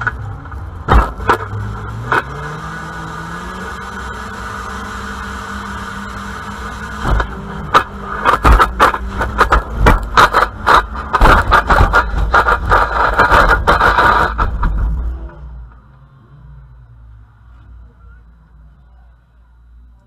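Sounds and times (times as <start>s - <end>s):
car engine running: 0.0s - 15.9s
clatter of knocks and rattles: 7.0s - 15.0s.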